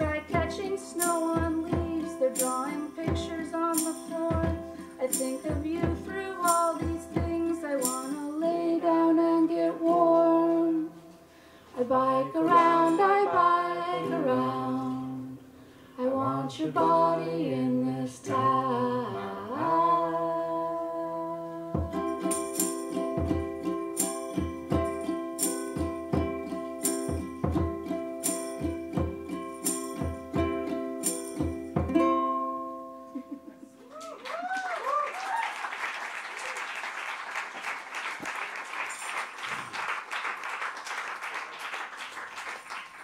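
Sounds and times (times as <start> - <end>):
tambourine strikes: 0.0 - 8.4, 21.8 - 32.1
woman singing: 0.0 - 11.1, 11.8 - 15.4, 16.0 - 22.4
ukulele: 0.0 - 11.2, 11.8 - 34.5.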